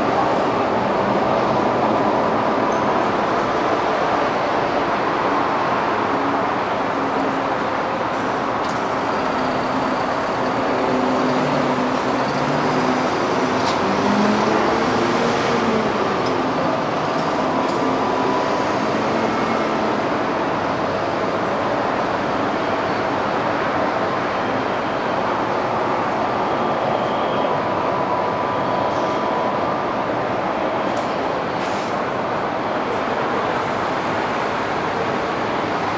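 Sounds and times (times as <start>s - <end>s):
rushing drone of aircraft: 0.0s - 35.9s.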